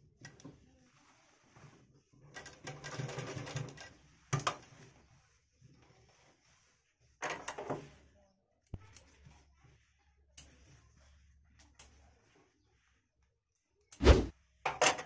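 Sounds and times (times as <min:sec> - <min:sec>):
rustling of cloth and paper: 0:00.1 - 0:08.3.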